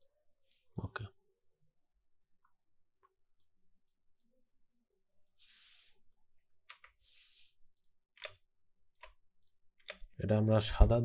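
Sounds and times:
computer mouse clicks: 6.6s - 10.2s.

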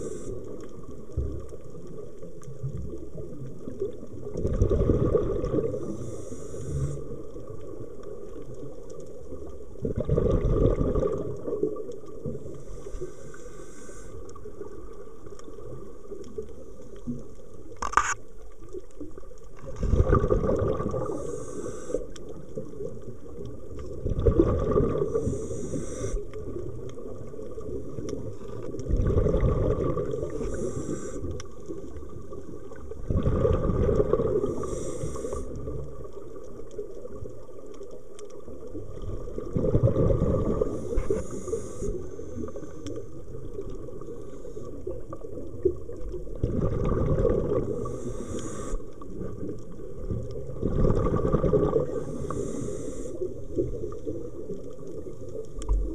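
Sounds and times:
regulator hiss on inhalation: 0.0s - 0.5s, 5.8s - 7.2s, 12.6s - 14.3s, 21.0s - 22.2s, 25.1s - 26.3s, 30.3s - 31.4s, 34.4s - 35.6s, 40.7s - 42.9s, 47.8s - 48.9s, 51.9s - 53.4s
rumble of exhaled bubbles: 0.0s - 13.1s, 18.5s - 55.9s.

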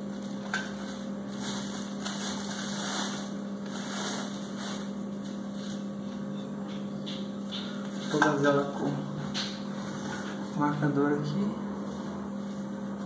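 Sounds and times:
plastic wrapping rustling: 0.0s - 6.0s
steady low hum: 0.0s - 13.0s.

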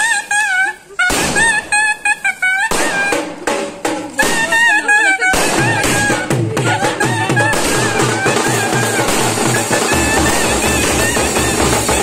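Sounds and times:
fireworks bangs: 0.0s - 12.0s
steady drum beat: 2.7s - 12.0s.

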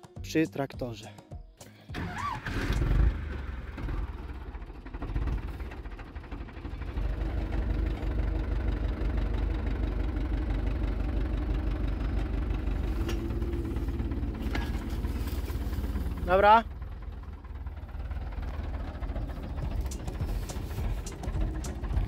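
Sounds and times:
tractor engine running: 1.9s - 22.0s.

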